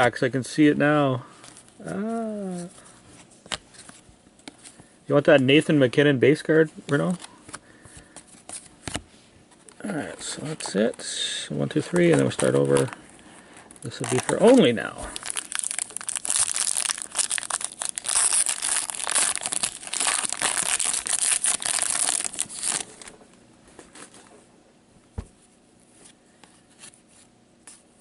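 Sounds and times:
wrapper tearing and crinkling: 12.2 - 13.0, 13.8 - 23.1.

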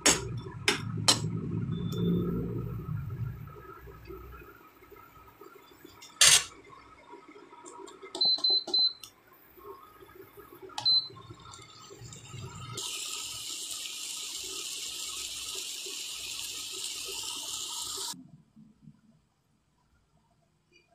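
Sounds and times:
short high electronic beeps: 1.7 - 2.5.

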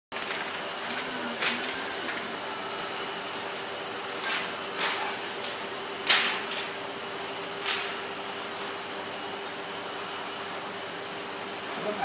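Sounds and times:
workshop hum: 0.1 - 12.0
high whine falling in pitch: 0.7 - 5.1.

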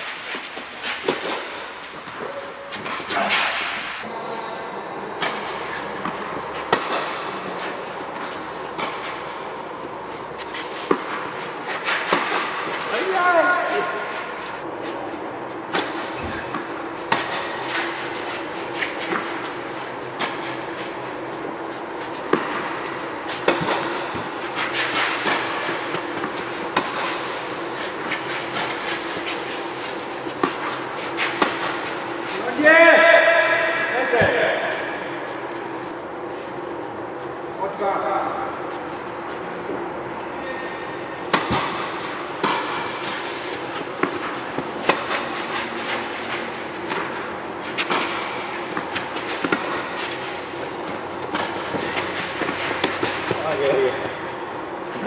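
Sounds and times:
rackets striking tennis ball: 0.0 - 4.1, 5.0 - 15.0, 15.6 - 37.4, 40.8 - 55.0
steady droning background: 0.0 - 55.0
ball bouncing on court: 22.2 - 24.4, 41.3 - 45.4.

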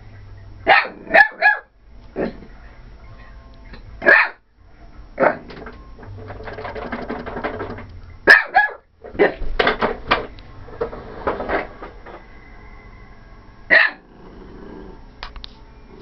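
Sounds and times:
dog barking excitedly: 0.7 - 1.7, 4.0 - 4.4, 8.2 - 9.4, 13.7 - 14.0
fast rattling buzz: 5.4 - 8.0.

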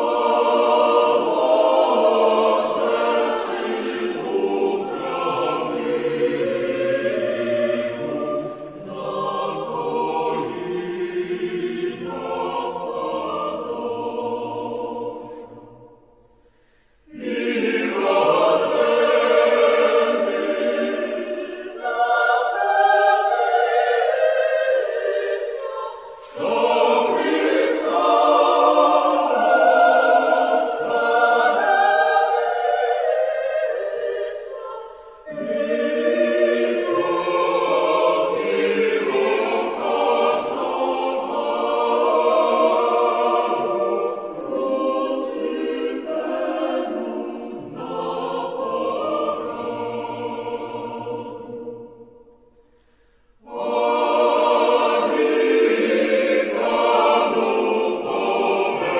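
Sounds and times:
choir singing: 0.0 - 58.9
singers breathing: 15.2 - 17.2, 25.9 - 26.3, 34.8 - 35.3, 52.4 - 53.5.

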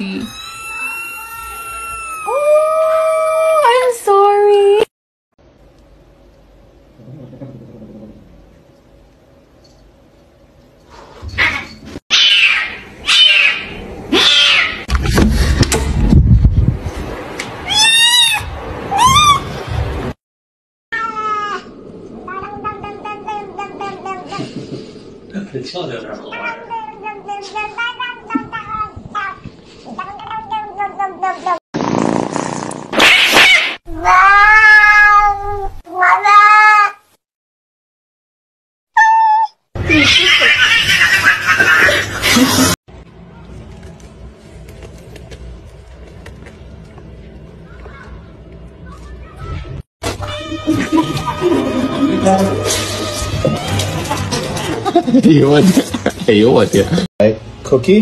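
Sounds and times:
kitten yowling: 0.2 - 3.6, 11.4 - 14.9, 17.6 - 19.5, 33.1 - 37.0, 39.0 - 41.9
kitten meowing: 11.4 - 14.8
cat hissing: 39.8 - 42.8.

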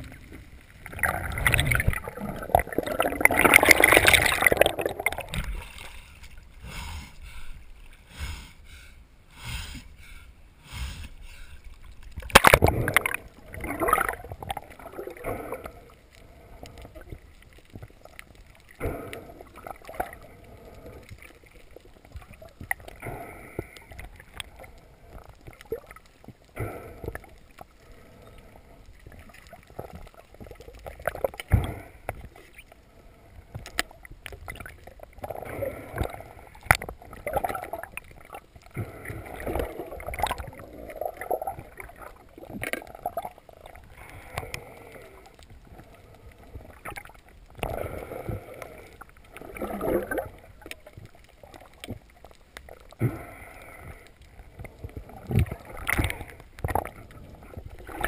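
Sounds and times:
underwater water sloshing and gurgling: 0.0 - 58.0.

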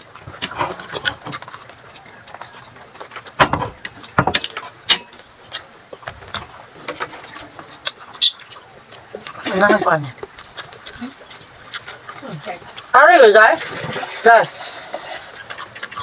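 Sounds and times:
chewing and lip smacks: 0.0 - 6.6, 7.3 - 12.9, 15.2 - 16.0.

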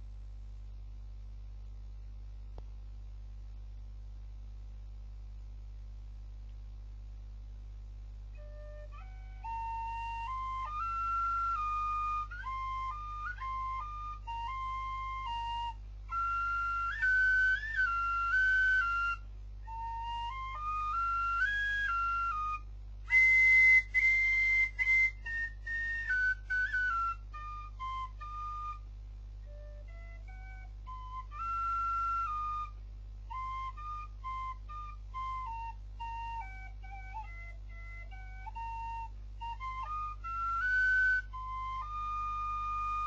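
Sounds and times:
steady low hum: 0.0 - 43.0
end-blown flute melody: 8.4 - 28.8, 29.4 - 43.0.

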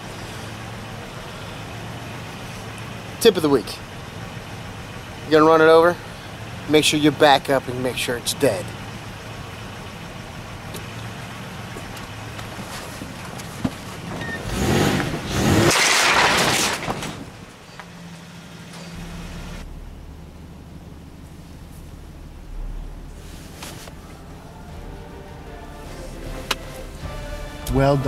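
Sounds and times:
car engine hum from cabin: 0.0 - 15.8, 16.9 - 28.0
tyre noise over road bump: 11.7 - 18.0.

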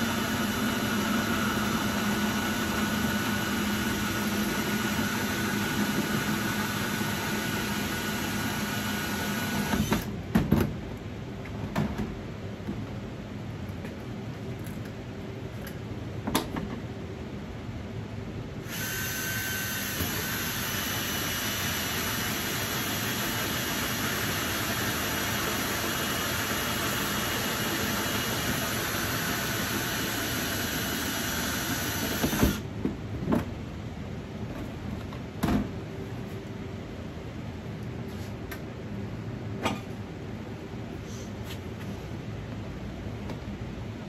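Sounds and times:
drill with hole saw cutting plastic: 0.0 - 10.1, 18.6 - 32.6.

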